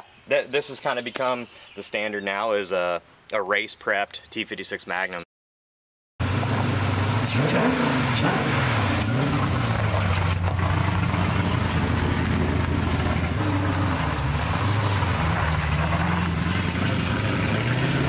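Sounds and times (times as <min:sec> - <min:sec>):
loud engine revving: 0:06.2 - 0:18.0
tyre spinning on gravel: 0:13.4 - 0:17.1.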